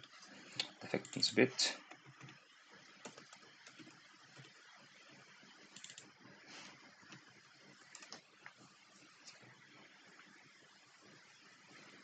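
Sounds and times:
faint keyboard typing clicks: 0.6 - 1.3, 1.9 - 2.4, 3.0 - 4.6, 5.7 - 6.1, 7.9 - 8.6.

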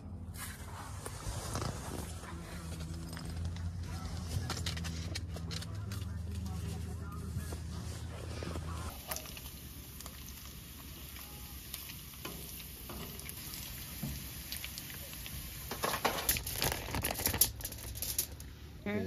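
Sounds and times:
bacon sizzling in a frying pan: 8.9 - 17.5
spatula turning bacon: 8.9 - 17.6.

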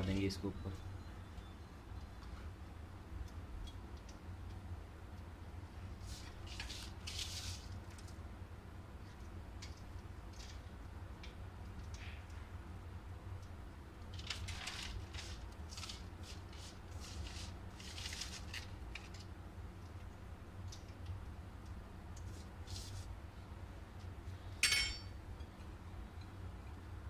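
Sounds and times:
dry rustles of crumbled onions: 5.9 - 8.2, 14.1 - 19.4, 22.3 - 23.2
metallic clink on pot: 24.6 - 25.1.

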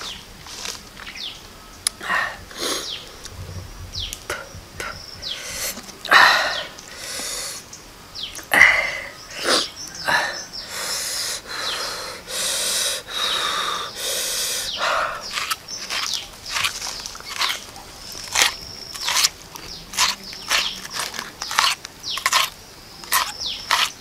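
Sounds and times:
man wheezing hissing breaths: 5.2 - 7.7, 8.5 - 15.6.

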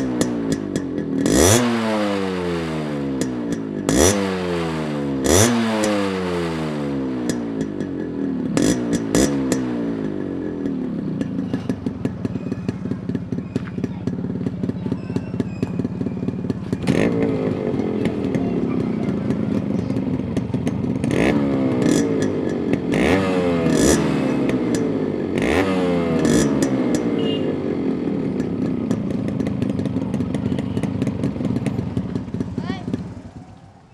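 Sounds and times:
motorcycle engine idling and revving: 0.0 - 33.9.

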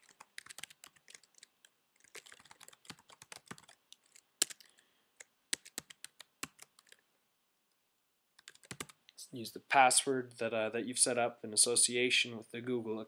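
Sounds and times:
computer keyboard typing: 0.0 - 4.8, 5.5 - 7.0, 8.4 - 9.0.

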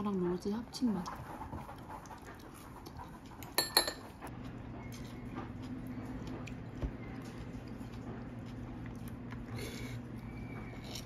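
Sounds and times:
low steady hum: 0.0 - 11.0
utensils clinking on ceramic dish: 3.6 - 4.2.

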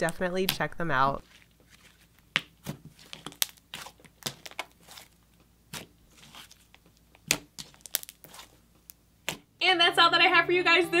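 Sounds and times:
slime sticky clicks and pops: 7.2 - 8.2.

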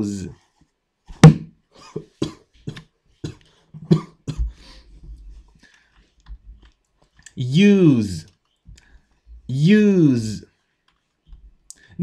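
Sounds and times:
man coughing: 1.8 - 4.6.

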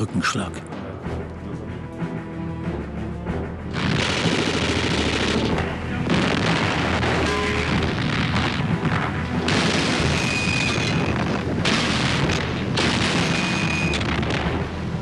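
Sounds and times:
background music: 0.0 - 15.0
explosions and artillery fire: 3.7 - 15.0.

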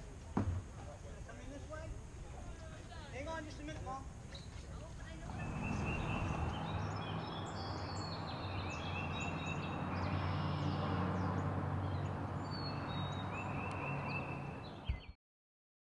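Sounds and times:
songbirds chirping: 3.2 - 15.2.

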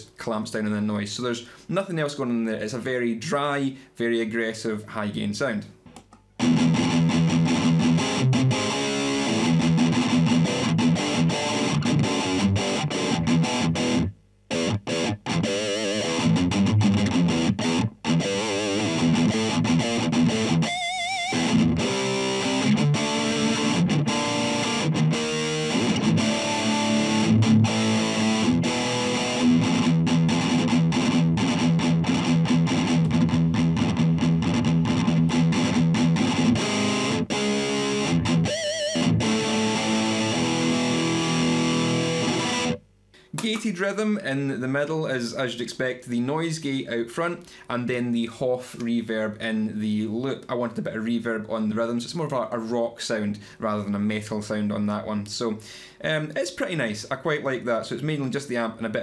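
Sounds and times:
distorted electric guitar riff: 5.9 - 43.8.

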